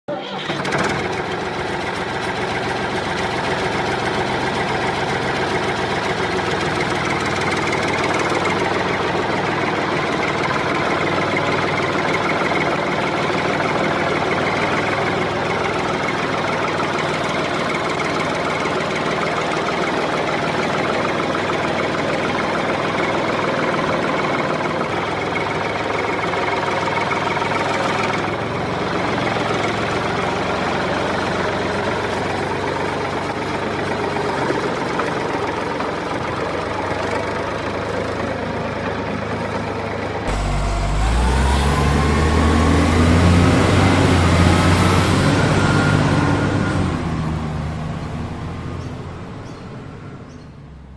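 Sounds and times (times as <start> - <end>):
motor running: 40.3 - 50.4
rising motor whine: 40.3 - 50.9.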